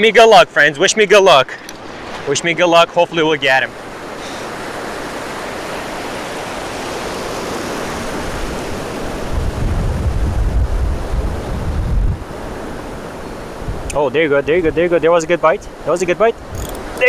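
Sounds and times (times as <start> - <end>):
ocean surf breaking: 0.0 - 17.0
wind gusting on microphone: 3.7 - 15.1, 15.7 - 17.0.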